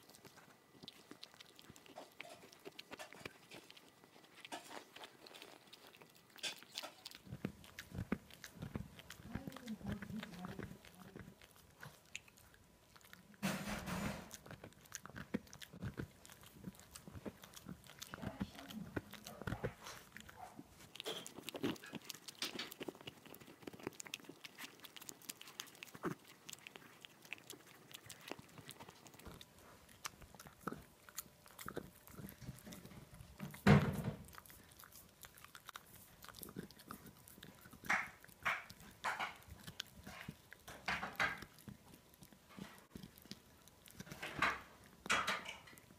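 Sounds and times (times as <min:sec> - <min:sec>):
dog chewing a bone: 0:00.0 - 0:45.9.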